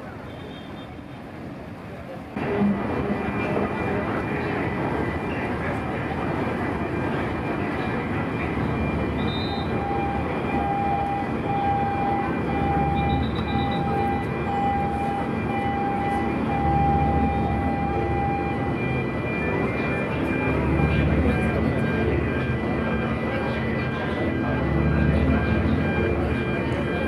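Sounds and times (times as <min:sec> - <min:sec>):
ship engine noise: 0:00.0 - 0:27.0
electronic warning beeper: 0:07.1 - 0:27.0.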